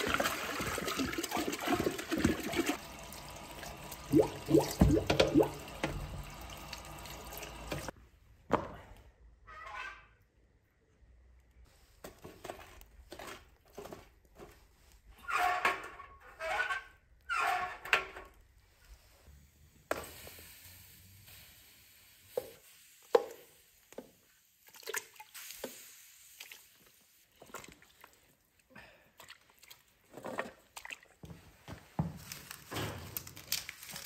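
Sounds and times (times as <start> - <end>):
steady hiss: 19.6 - 24.4.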